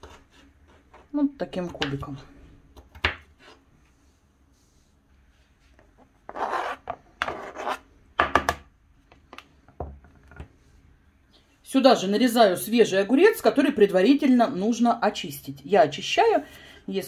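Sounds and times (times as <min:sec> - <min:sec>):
knife scraping cutting board: 0:00.0 - 0:01.1, 0:03.4 - 0:03.7, 0:06.2 - 0:07.8.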